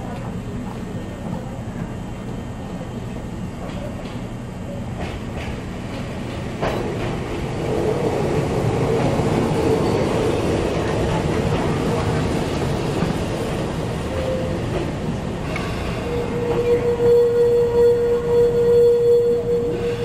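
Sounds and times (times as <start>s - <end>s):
rumble of train wheels and motors: 0.0s - 20.0s
electric train passing: 5.7s - 20.0s.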